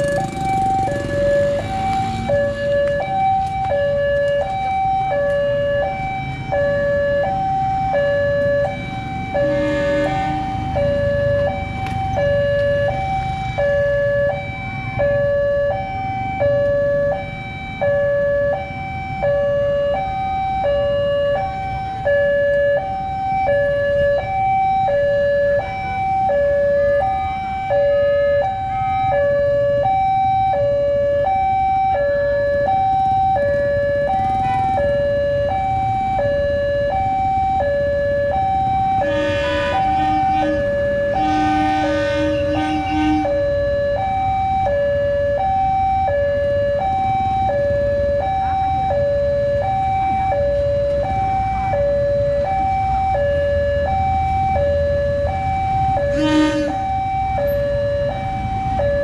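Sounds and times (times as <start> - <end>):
level crossing two-tone alarm: 0.0 - 59.0
motorcycle and car traffic: 0.0 - 59.0.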